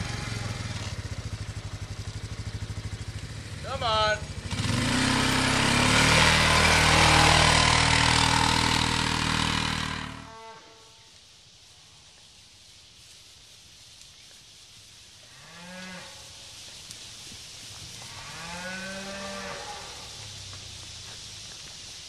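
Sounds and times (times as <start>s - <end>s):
steady background hiss: 0.0s - 22.0s
cattle mooing: 5.1s - 9.0s, 9.6s - 10.8s, 18.2s - 20.0s.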